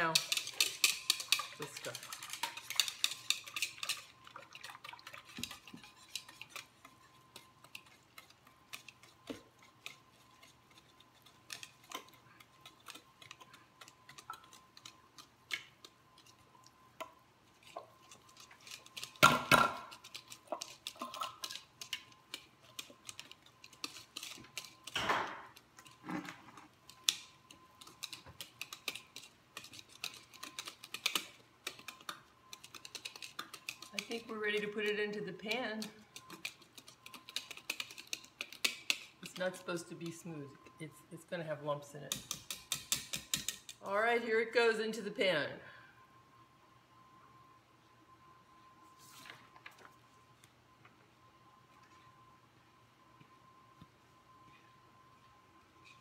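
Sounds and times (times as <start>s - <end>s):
whisk scraping a mixing bowl: 0.0s - 16.5s.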